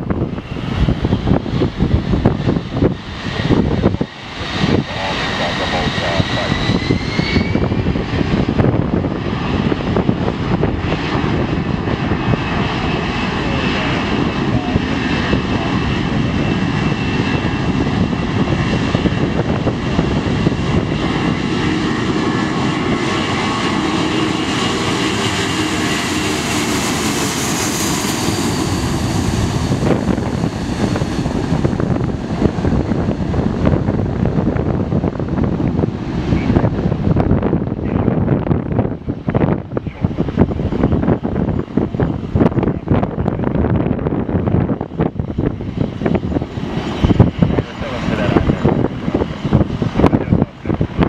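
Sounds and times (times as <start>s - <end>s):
jet engines spooling up: 0.0s - 51.0s
loud jet noise: 0.0s - 51.0s.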